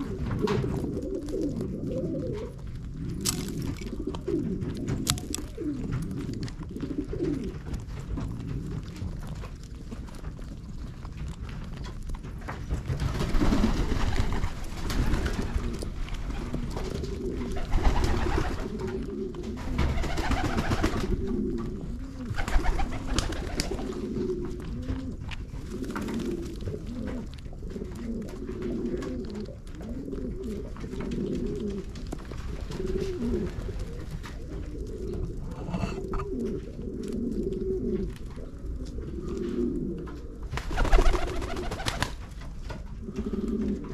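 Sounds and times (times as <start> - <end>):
pigeons cooing: 0.0 - 43.9.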